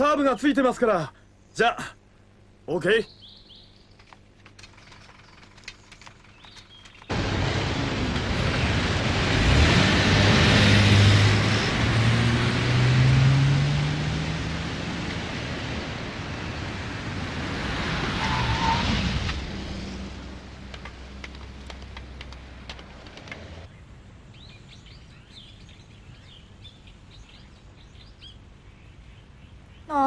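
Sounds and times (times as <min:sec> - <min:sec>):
birds chirping: 0:00.0 - 0:07.2, 0:20.7 - 0:30.0
faint clicks: 0:03.9 - 0:07.1, 0:20.7 - 0:23.7
passing vehicle: 0:07.1 - 0:23.7.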